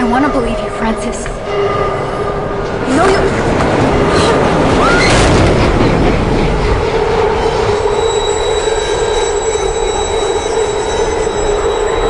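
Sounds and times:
subway train rumble: 0.0s - 12.0s
metal wheel squeal: 7.2s - 12.0s.

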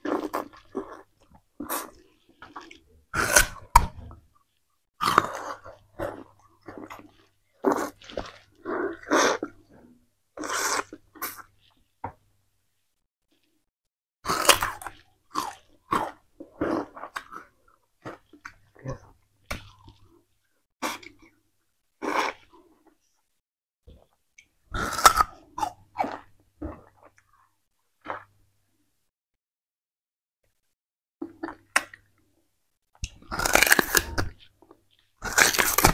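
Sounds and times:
chewing and crunching sugarcane: 0.0s - 4.2s, 5.0s - 11.8s, 14.3s - 20.2s, 33.0s - 35.9s.

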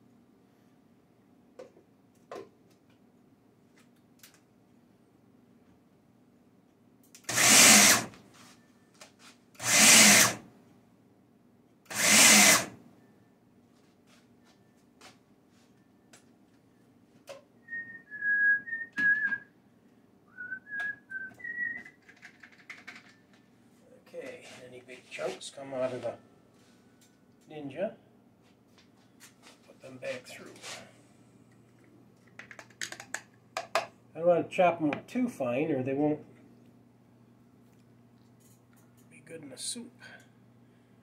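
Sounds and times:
food processor chopping vegetables: 7.3s - 8.1s, 9.6s - 10.4s, 11.9s - 12.8s
person whistling a tune: 17.6s - 19.5s, 20.3s - 22.0s.

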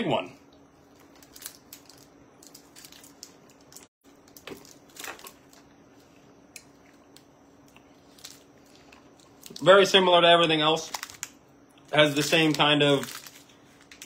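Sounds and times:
faint steady hum: 0.0s - 14.0s
plastic candy wrapper crinkling: 0.9s - 5.7s, 8.0s - 9.7s, 10.8s - 11.4s, 12.0s - 14.0s.

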